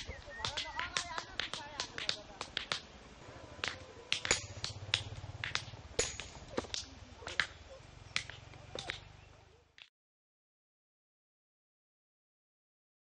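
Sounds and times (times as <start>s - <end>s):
hammers striking stone: 3.6s - 9.0s.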